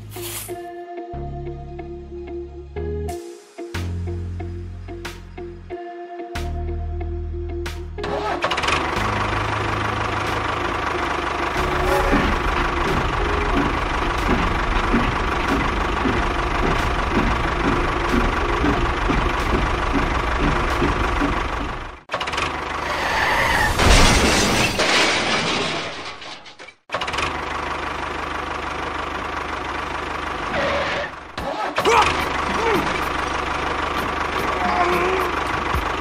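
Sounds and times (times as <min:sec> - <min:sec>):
model tractor engine running: 0:08.4 - 0:22.8, 0:26.9 - 0:31.3, 0:32.0 - 0:36.0.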